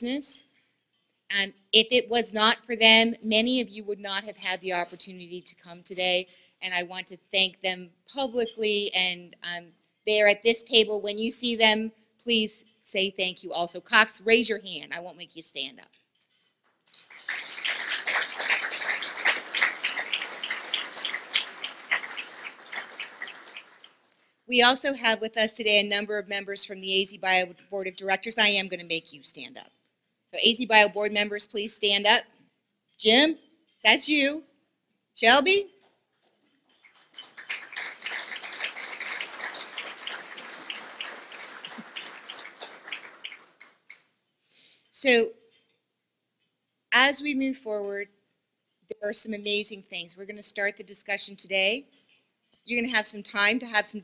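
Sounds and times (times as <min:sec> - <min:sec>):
audience applauding: 0:16.9 - 0:24.1, 0:36.8 - 0:44.0.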